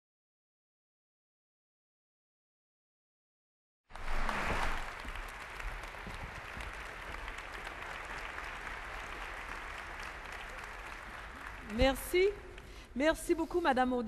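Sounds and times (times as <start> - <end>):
audience applauding: 3.9 - 12.8.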